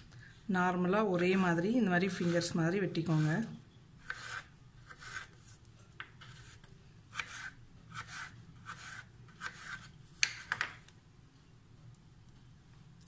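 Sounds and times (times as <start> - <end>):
knife slicing potato: 1.0 - 5.6, 6.2 - 10.6.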